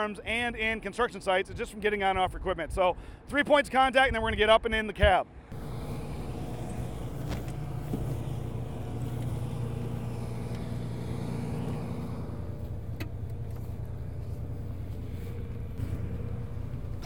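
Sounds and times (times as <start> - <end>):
diesel engine idling: 5.5 - 17.0.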